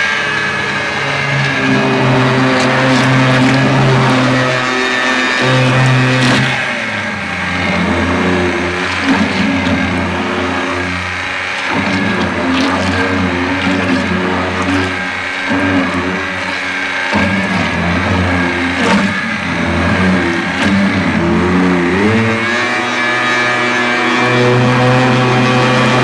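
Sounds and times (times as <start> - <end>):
immersion blender motor whirring: 0.0 - 26.0.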